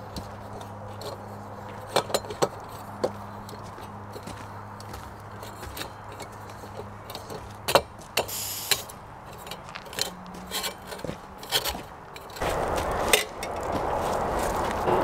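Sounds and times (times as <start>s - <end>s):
metallic clicks and scrapes: 0.1s - 4.3s, 5.4s - 13.7s
gas hiss: 8.3s - 8.9s.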